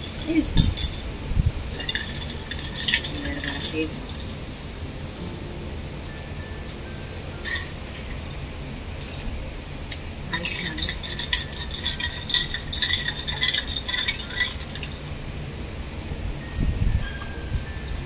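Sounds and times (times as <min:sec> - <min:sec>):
teaspoon clinking against glass: 0:00.0 - 0:01.1, 0:01.7 - 0:04.4, 0:07.3 - 0:07.9, 0:10.3 - 0:15.1.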